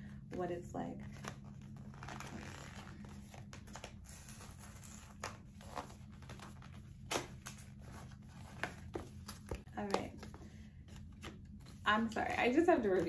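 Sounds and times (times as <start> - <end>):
low hum: 0.0 - 13.0.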